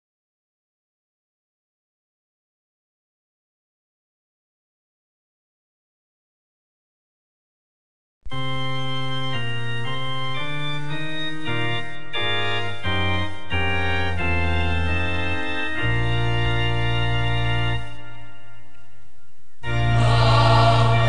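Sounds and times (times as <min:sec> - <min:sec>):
organ chords: 0:08.3 - 0:21.0.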